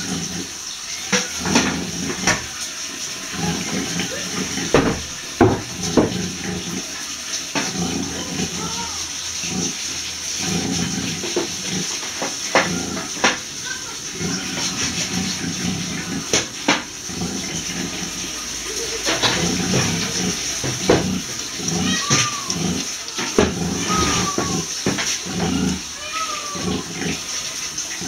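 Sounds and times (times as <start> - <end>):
sow grunting: 18.7 - 27.3.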